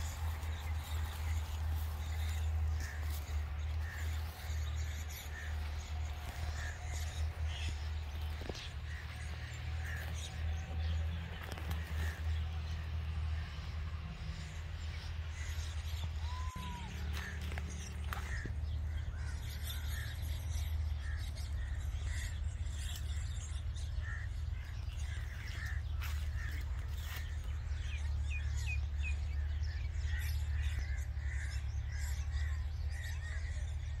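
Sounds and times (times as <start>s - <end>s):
baby birds calling: 0.0s - 13.4s, 14.3s - 34.0s
steady low hum: 0.0s - 34.0s.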